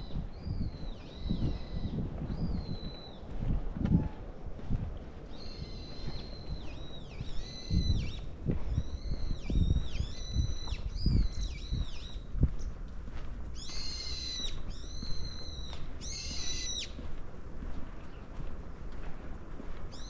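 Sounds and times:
bird calling shrilly: 0:13.6 - 0:17.0.

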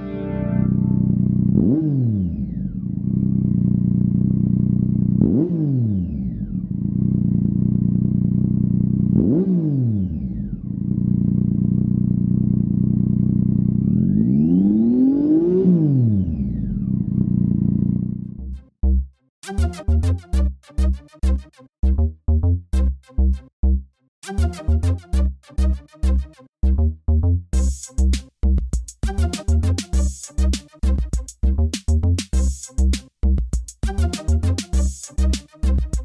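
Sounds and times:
motorcycle engine idling and revving: 0:00.7 - 0:18.6.

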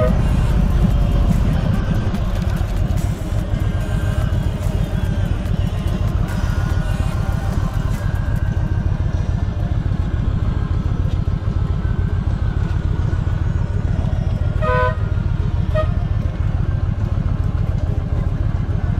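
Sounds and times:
vehicle horn toots: 0:00.0 - 0:00.4, 0:14.6 - 0:16.2
motorcycle engine rumbling: 0:00.0 - 0:18.9.

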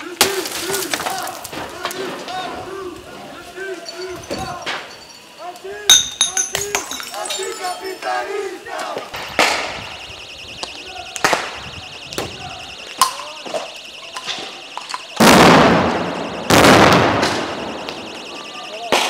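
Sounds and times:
steady alarm: 0:00.0 - 0:19.0
sharp cracks: 0:00.2 - 0:02.4, 0:10.6 - 0:19.0
loud grenade blasts: 0:11.2 - 0:19.0.

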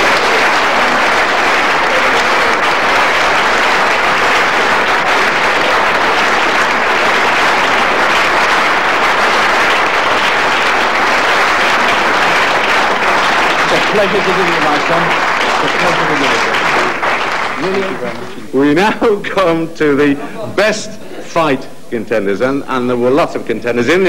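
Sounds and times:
audience applauding: 0:00.0 - 0:19.0.

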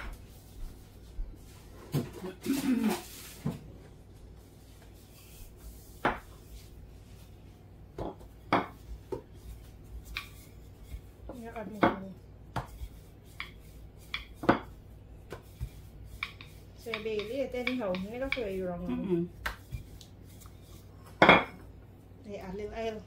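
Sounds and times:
kitchen knocks and taps: 0:08.0 - 0:09.3.

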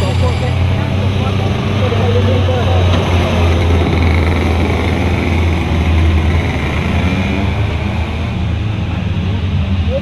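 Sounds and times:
two-stroke kart engine idling: 0:00.0 - 0:07.6.

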